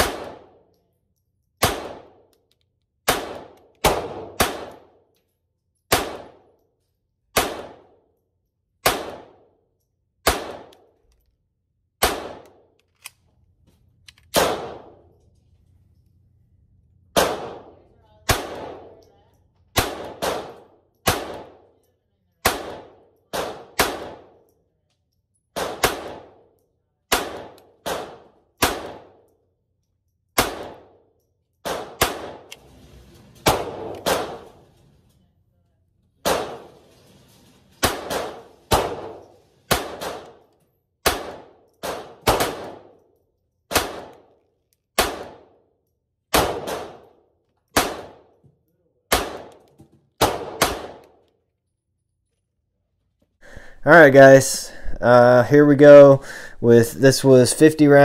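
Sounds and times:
pistol shots with ringing echo: 0.0s - 0.7s, 1.6s - 2.3s, 3.0s - 5.1s, 5.9s - 6.6s, 7.2s - 8.2s, 8.8s - 9.6s, 10.2s - 11.0s, 12.0s - 12.7s, 14.3s - 15.2s, 17.1s - 19.0s, 19.7s - 21.8s, 22.4s - 24.6s, 25.5s - 29.4s, 30.3s - 32.5s, 33.4s - 34.6s, 36.2s - 36.8s, 37.8s - 48.4s, 49.1s - 51.2s.

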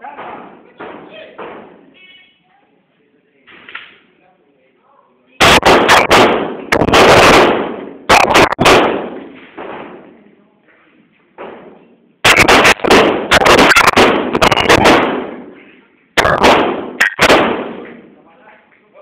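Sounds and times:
echoing gunshots: 5.4s - 10.1s, 11.4s - 15.6s, 16.2s - 17.9s.

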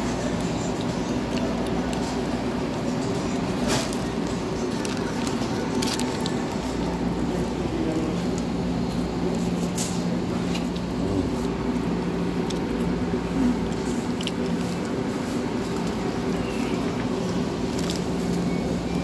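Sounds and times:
machine hum with tones: 0.0s - 19.0s
paper crackling: 3.5s - 7.1s.

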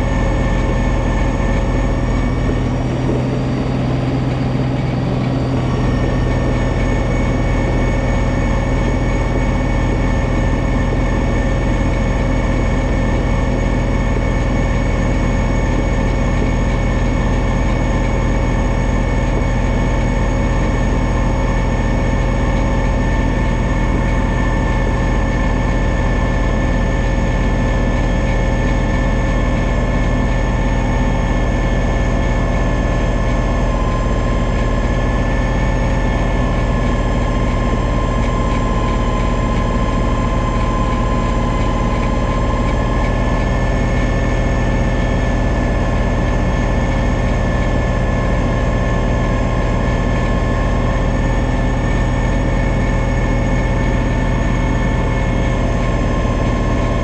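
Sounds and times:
snow blower high whine: 0.0s - 57.0s
tractor diesel engine running: 0.0s - 57.0s.

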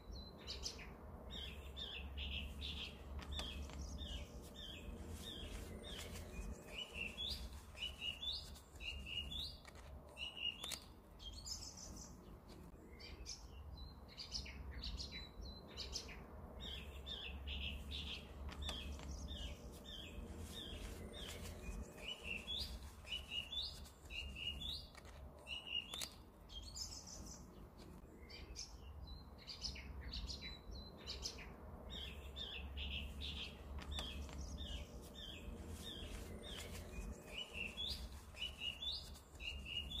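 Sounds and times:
small birds chirping: 0.0s - 40.0s.

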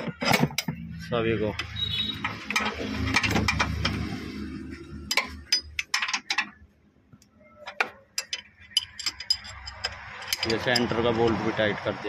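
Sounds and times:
sharp metallic clinks: 8.1s - 11.2s.

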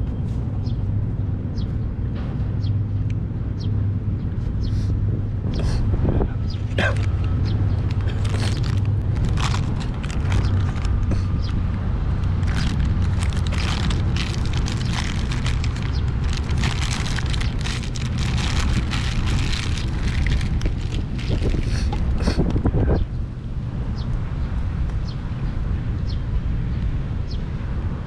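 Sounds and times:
steady low rumble: 0.0s - 28.0s
paper wrapper crinkling: 7.0s - 11.1s, 12.2s - 22.2s.

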